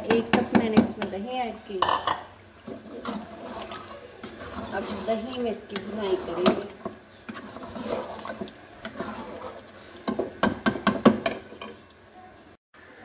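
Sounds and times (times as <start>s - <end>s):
spatula scraping a cooking pot: 2.7s - 10.6s.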